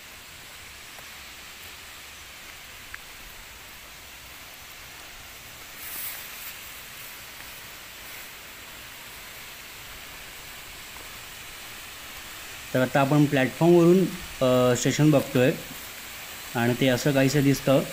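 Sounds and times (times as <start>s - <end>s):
rain falling: 0.0s - 17.9s.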